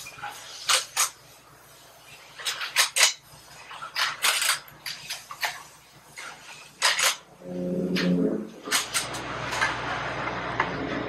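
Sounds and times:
short low tone: 7.4 - 8.6.

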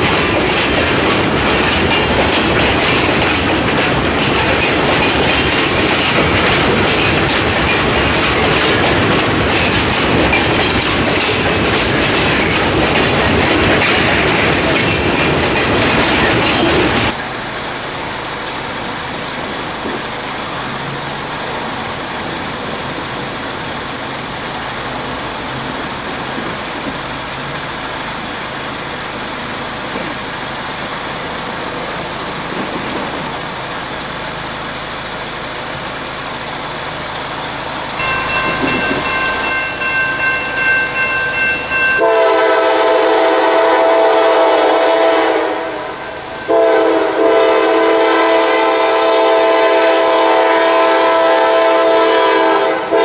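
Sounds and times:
freight train wheels clattering: 0.0 - 53.0
train rumble: 0.0 - 53.0.

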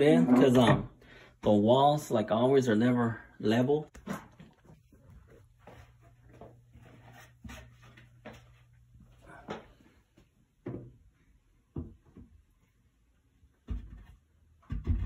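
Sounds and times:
wooden shelf knocking against walls: 13.6 - 15.0.

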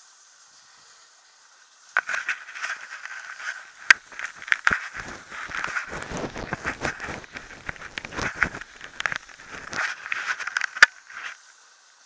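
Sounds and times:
sled runners crunching on snow: 2.0 - 11.2.

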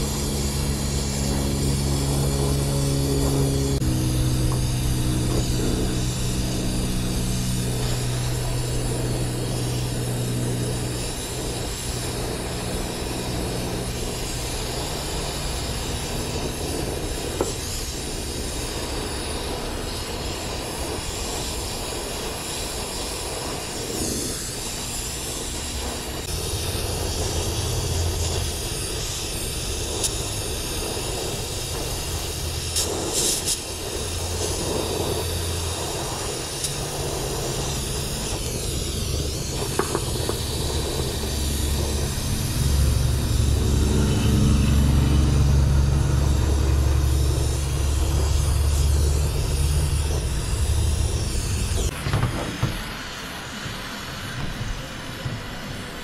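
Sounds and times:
gas hissing: 0.0 - 56.0
low engine-like drone: 0.0 - 56.0.

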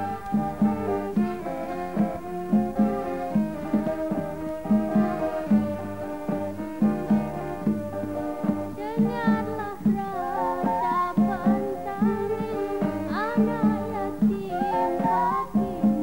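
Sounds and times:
live band playing: 0.0 - 16.0
woman singing: 8.7 - 16.0.

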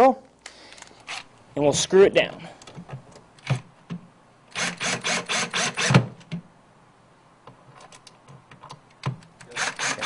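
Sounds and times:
cordless drill driving screw: 4.5 - 6.1, 9.5 - 10.0.

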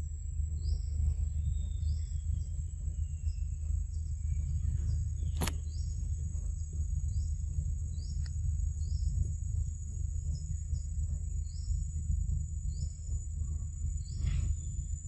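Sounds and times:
high insect drone: 0.0 - 15.0
steady low rumble: 0.0 - 15.0
sharp click: 5.4 - 5.6.

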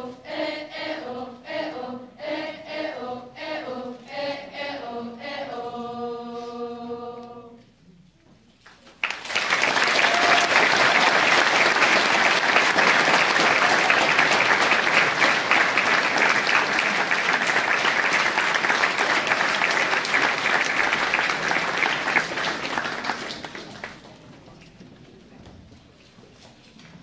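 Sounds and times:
audience applauding: 9.0 - 24.2.

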